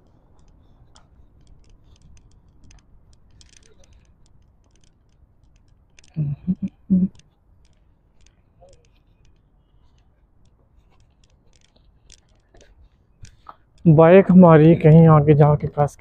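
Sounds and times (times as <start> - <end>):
person's voice: 6.2 - 7.1, 13.9 - 16.0.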